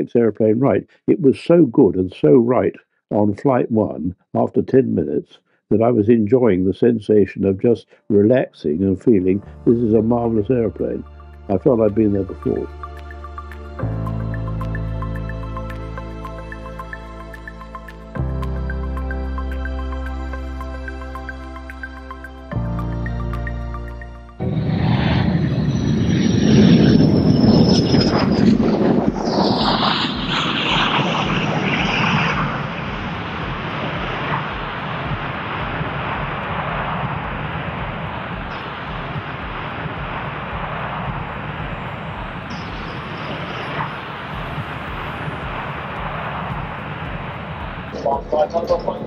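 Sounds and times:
jet aircraft flying low past: 22.8s - 49.0s
jet engine rush: 24.3s - 49.0s.

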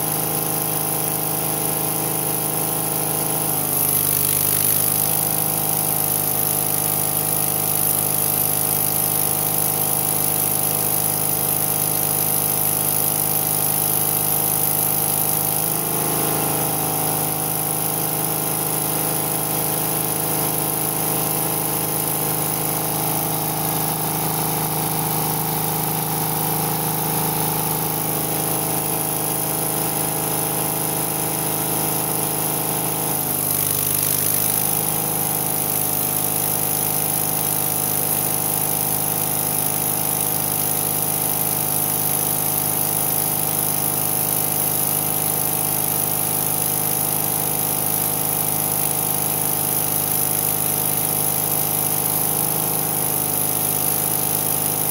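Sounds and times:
welding arc hissing and crackling: 0.0s - 54.9s
engine running: 13.3s - 33.6s.

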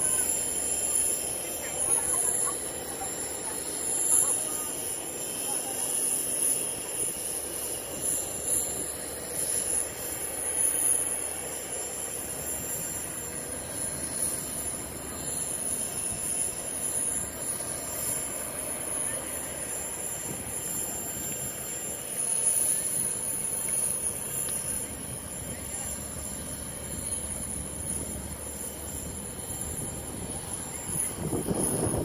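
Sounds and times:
high-pitched whine: 0.0s - 32.0s
outdoor background noise: 0.0s - 32.0s.

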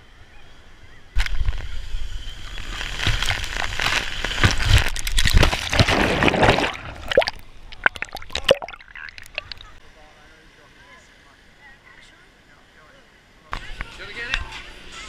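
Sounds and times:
water splashing and sloshing: 3.0s - 9.8s
water dripping and gurgling: 5.0s - 9.8s.

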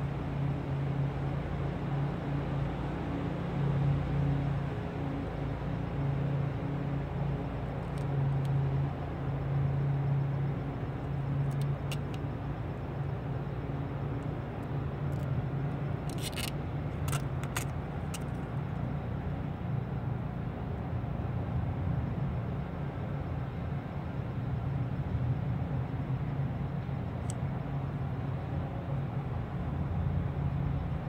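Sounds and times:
vehicle engine humming: 5.9s - 19.6s
sharp clicks and crackles: 11.5s - 12.2s, 16.0s - 18.4s.

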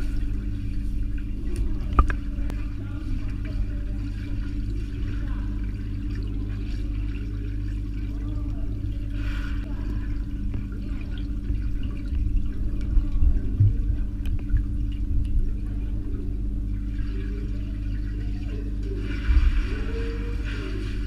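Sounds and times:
muffled underwater water movement: 0.0s - 21.0s
steady hum: 0.0s - 21.0s
underwater thumps: 1.6s - 2.6s, 11.5s - 15.6s, 19.2s - 20.2s.

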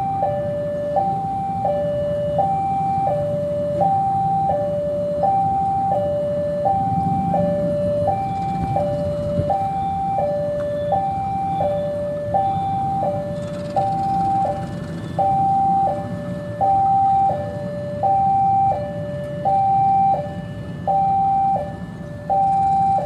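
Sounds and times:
two-tone electronic warning signal: 0.0s - 23.0s
diesel locomotive rumbling: 5.4s - 18.4s.

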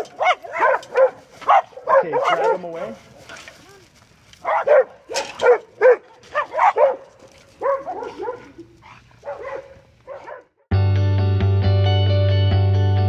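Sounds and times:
small dog yelping barks: 0.0s - 2.7s, 4.4s - 7.0s, 7.6s - 10.4s.

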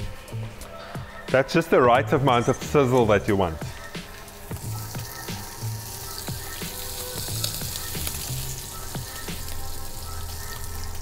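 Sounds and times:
soft background music: 0.0s - 11.0s
fish sizzling in a pan: 3.7s - 11.0s.

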